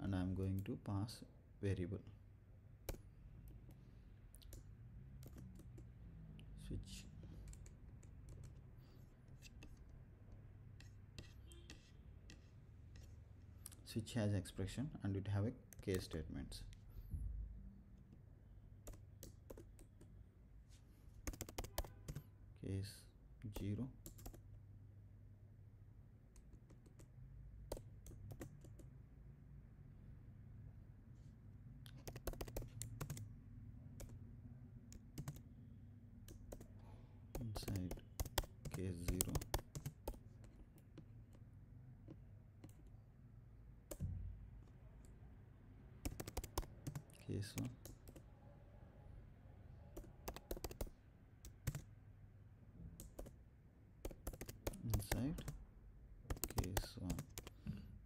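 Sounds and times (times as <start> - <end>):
faint low hum: 0.0 - 58.0
computer keyboard keystrokes: 4.4 - 5.9, 7.4 - 8.6, 18.9 - 20.1, 21.2 - 22.2, 23.5 - 24.4, 26.4 - 27.1, 27.7 - 28.9, 31.9 - 33.2, 34.0 - 34.2, 34.9 - 35.4, 37.3 - 41.1, 46.0 - 48.2, 50.0 - 51.9, 53.0 - 53.4, 54.0 - 55.6, 56.3 - 57.6
keyboard keystrokes clicking: 31.9 - 33.2, 37.4 - 40.2, 46.1 - 47.0, 50.0 - 50.9, 51.6 - 51.8, 54.0 - 55.6, 56.3 - 57.6.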